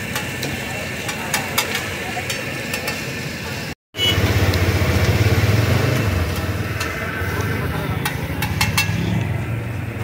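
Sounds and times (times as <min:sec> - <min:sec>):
metal spatulas scraping on griddle: 0:06.3 - 0:09.2.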